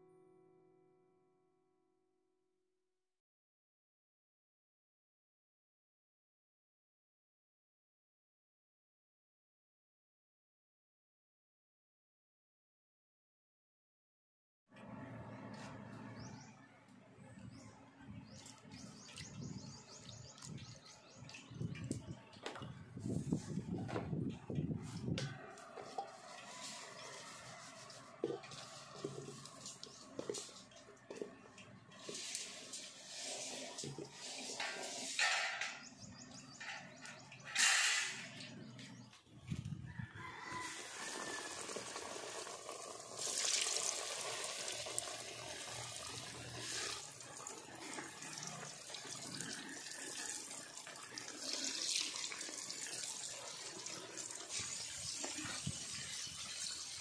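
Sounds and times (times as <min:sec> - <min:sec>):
chicken rustling in flour in bowl: 0:25.6 - 0:31.2
chicken sizzling in hot oil: 0:26.1 - 0:30.6, 0:31.9 - 0:35.3, 0:40.2 - 0:57.0.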